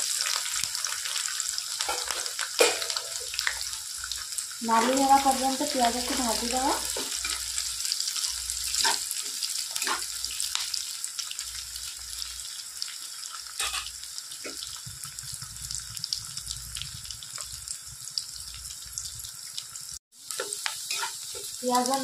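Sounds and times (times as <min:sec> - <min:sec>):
onions sizzling in hot oil: 0:00.0 - 0:22.0
spatula scraping pan: 0:08.7 - 0:10.1, 0:20.4 - 0:21.6.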